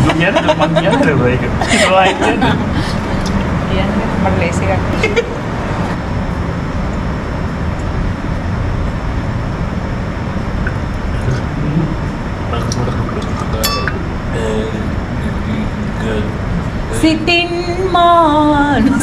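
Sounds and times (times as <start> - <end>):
people gargling water: 11.2 - 13.7
sung notes: 13.5 - 14.5.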